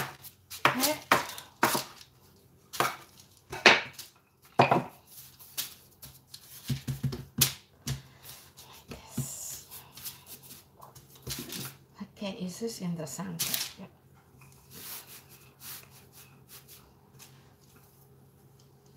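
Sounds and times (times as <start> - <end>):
hands patting dough: 2.7 - 11.8.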